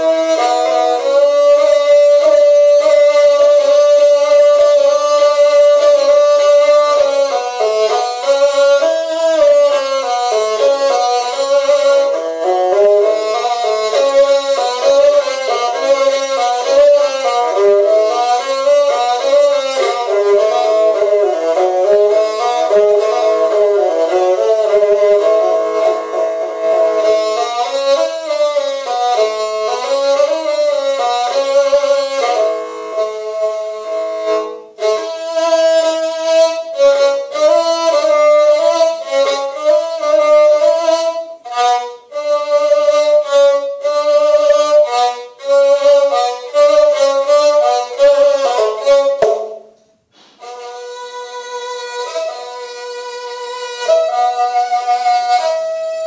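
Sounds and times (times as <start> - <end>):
bowed string instrument melody: 0.0 - 56.0.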